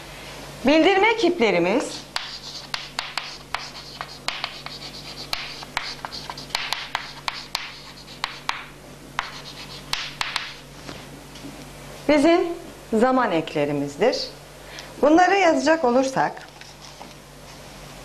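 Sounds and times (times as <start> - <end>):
chalk writing on chalkboard: 2.0 - 10.6.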